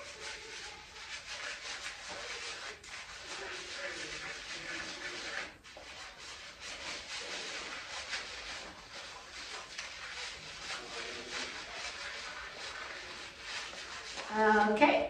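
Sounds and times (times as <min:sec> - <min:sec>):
fingertips scrubbing wet hair: 0:00.0 - 0:14.8.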